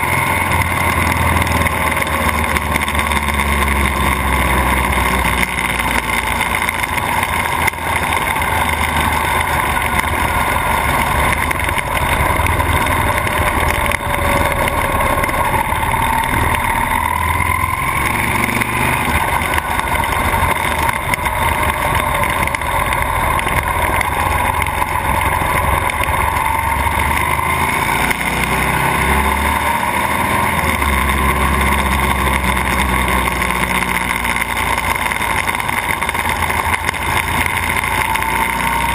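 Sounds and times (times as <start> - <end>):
motorcycle engine running: 0.0 - 38.9
wind and road noise: 0.0 - 38.9.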